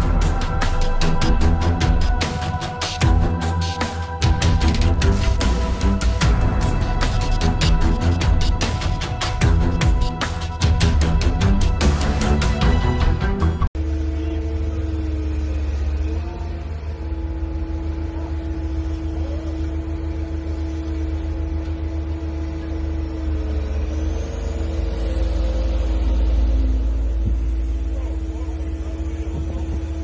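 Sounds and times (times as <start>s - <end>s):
burst of music: 0.0s - 15.0s
diesel engine running with whine: 0.0s - 30.0s.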